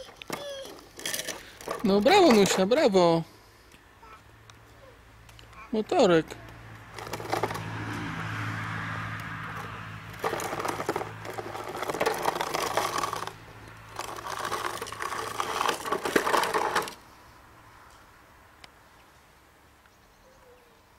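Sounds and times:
plastic wheels rattling over concrete: 0.0s - 3.2s, 6.9s - 7.7s, 9.5s - 17.0s.

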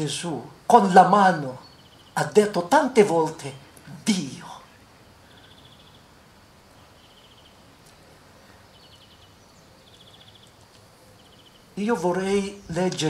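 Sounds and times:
high chirping trills: 5.1s - 13.0s.

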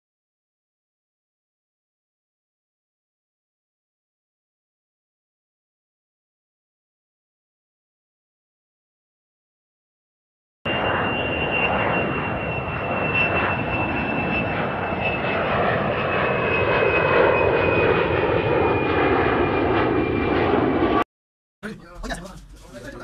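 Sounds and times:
jet engines whining: 10.7s - 21.0s.

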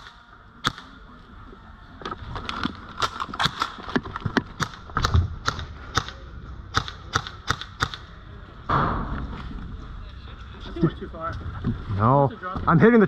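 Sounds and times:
airsoft rifle shots: 4.6s - 8.1s.

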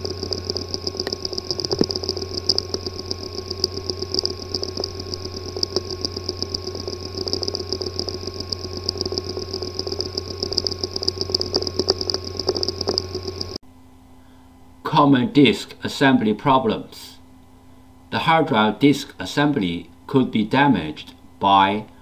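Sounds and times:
hard drive uneven ticking: 0.0s - 13.6s
hard drive hum and whine: 0.0s - 22.0s.

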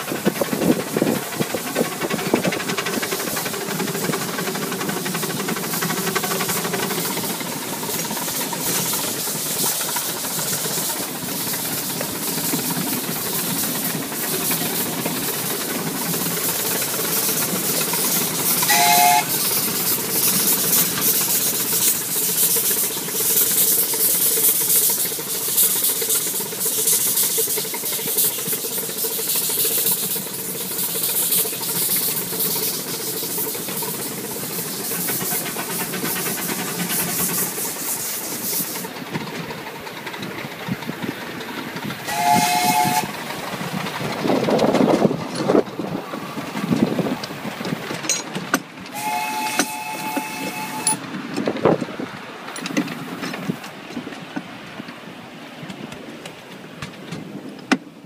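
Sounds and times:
steam hissing: 0.0s - 57.4s
miniature steam locomotive running: 0.0s - 58.0s
steam whistle blasts: 18.6s - 19.6s, 42.0s - 43.2s, 48.9s - 51.0s.

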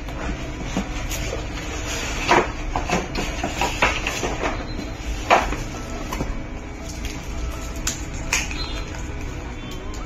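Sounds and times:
scrapes and knocks: 0.1s - 5.6s.

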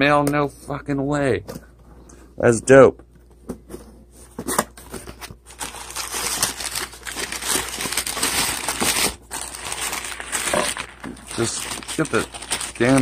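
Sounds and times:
packing paper crinkling: 4.9s - 13.0s.

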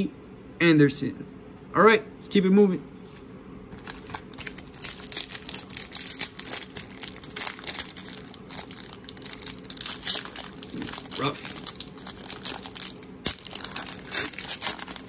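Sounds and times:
foil wrapper crinkling: 3.7s - 15.0s.

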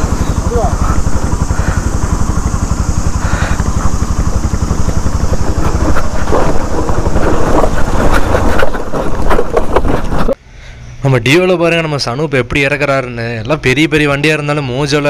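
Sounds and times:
knocks and rattles: 0.0s - 10.4s
motorcycle engine running: 0.0s - 10.4s.

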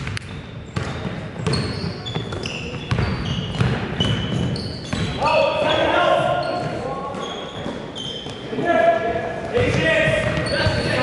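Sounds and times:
basketball bouncing: 0.0s - 5.2s, 9.6s - 10.9s
shoes squeaking on gym floor: 0.0s - 8.6s, 9.7s - 11.0s.

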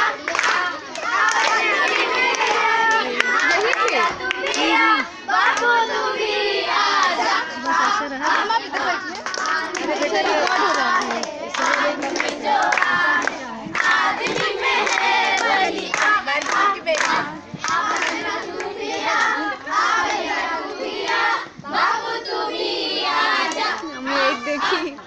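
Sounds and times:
hands clapping: 0.0s - 4.8s, 7.6s - 19.4s
girls singing together: 0.0s - 25.0s.

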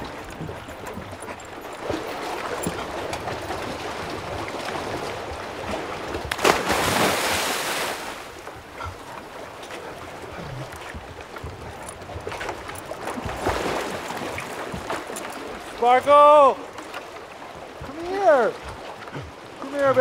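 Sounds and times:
churning water: 0.0s - 20.0s
water lapping: 0.0s - 20.0s
wind: 0.0s - 20.0s
body splashing into water: 3.7s - 8.4s.

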